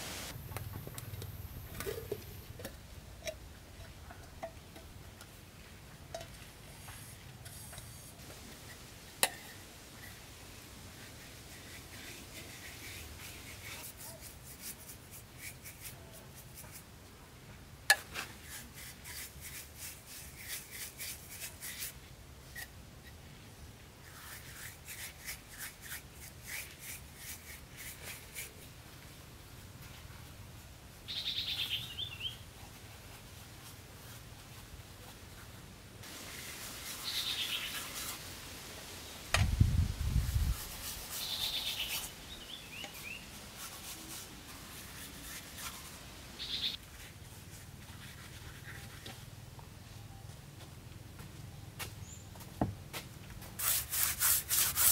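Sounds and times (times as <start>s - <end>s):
bird chirping: 31.1s - 32.4s, 37.0s - 37.8s, 41.1s - 43.3s, 46.4s - 46.8s
quick scraping strokes: 39.6s - 49.3s, 53.6s - 54.9s.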